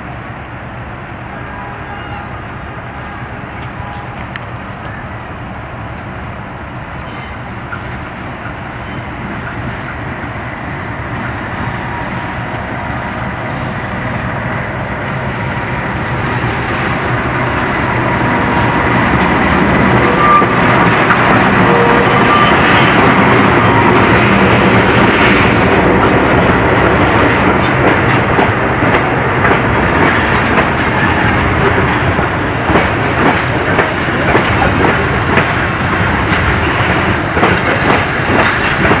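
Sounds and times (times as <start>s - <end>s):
train rolling noise: 0.0s - 39.0s
diesel locomotive engine running: 9.5s - 39.0s.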